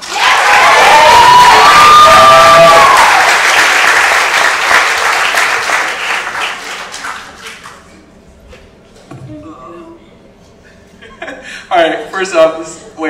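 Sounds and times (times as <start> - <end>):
high cheering whoop: 0.0 - 3.6
audience applauding: 0.0 - 8.0.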